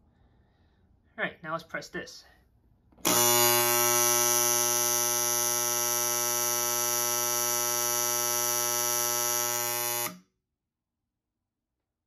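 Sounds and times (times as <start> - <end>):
alarm horn steady tone: 3.1 - 10.2.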